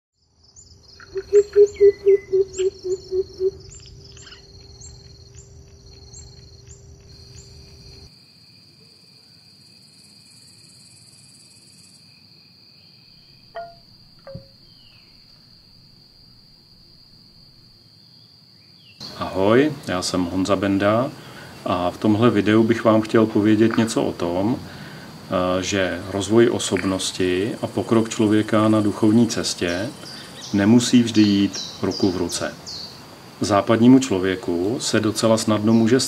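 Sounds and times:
insects trilling: 0.2 - 36.0
high chirping notes: 1.0 - 5.6, 13.5 - 15.3.

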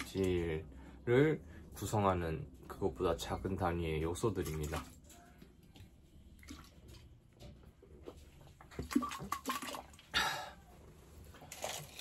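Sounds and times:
person gulping from a bottle: 8.5 - 10.7.

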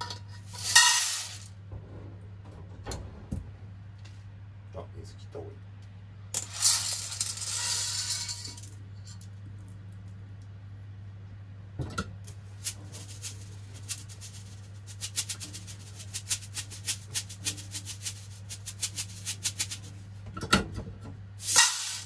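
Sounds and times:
steady low hum: 0.0 - 22.0
beans rattling in a strainer: 0.4 - 1.5, 6.4 - 9.4, 12.3 - 19.9, 21.4 - 22.0.

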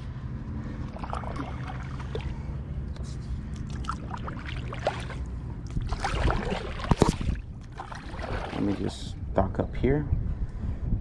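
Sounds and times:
paddle stroking through water: 5.9 - 9.0.

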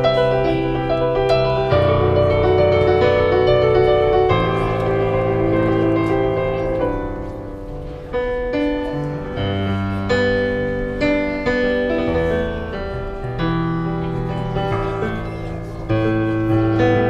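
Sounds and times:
digital piano chords: 0.0 - 17.0.

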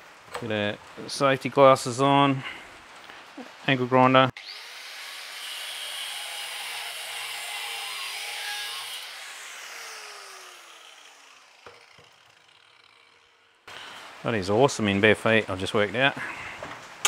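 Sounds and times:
angle grinder whining: 4.4 - 13.7
grinder disc spinning down: 7.2 - 13.7.

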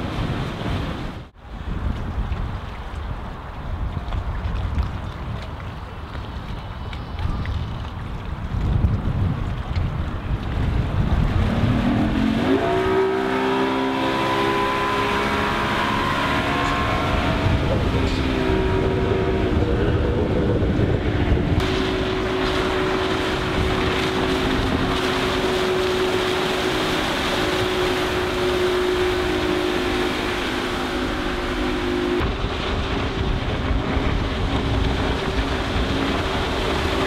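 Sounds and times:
outboard motor running: 10.1 - 37.0.

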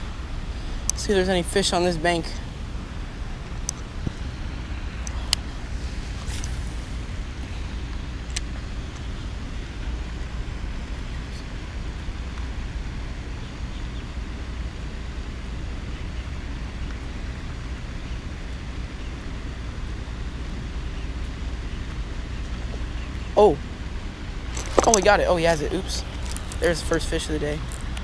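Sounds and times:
wind rumble on microphone: 0.0 - 18.5.

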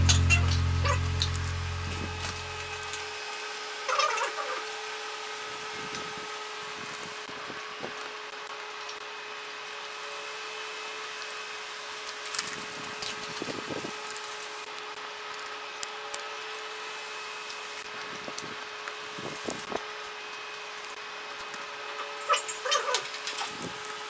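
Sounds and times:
steady hum: 0.0 - 3.8.

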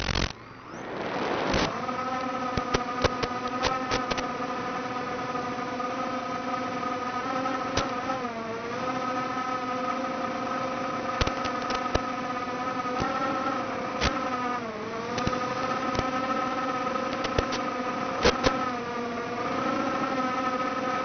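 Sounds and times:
sharp clicks: 0.0 - 0.4, 1.4 - 4.3, 11.1 - 12.1, 15.1 - 16.1, 17.0 - 18.6
drone motors whining: 0.0 - 21.0.

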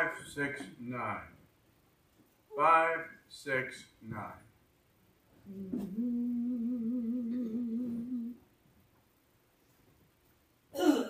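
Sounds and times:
man humming a held note: 5.5 - 8.4.

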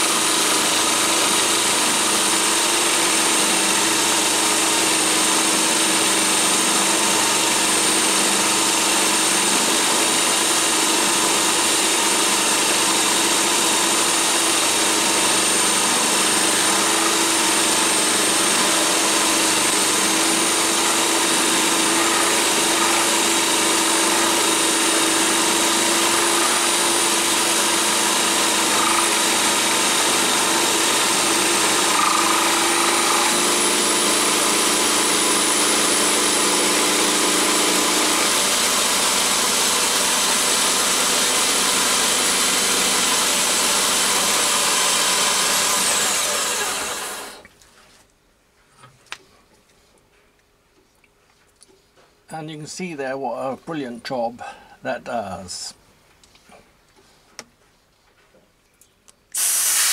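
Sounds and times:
end mill cutting steel: 0.0 - 47.4
power drill motor hum: 0.0 - 47.4.

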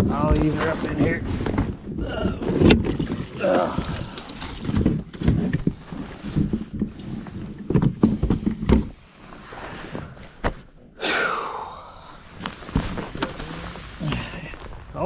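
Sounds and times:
plastic knocks and clunks: 1.4 - 9.0.

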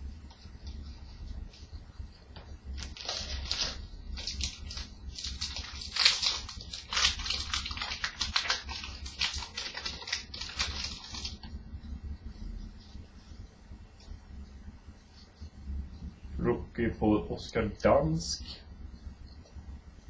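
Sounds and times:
plastic wrapper crinkling: 2.8 - 11.5.

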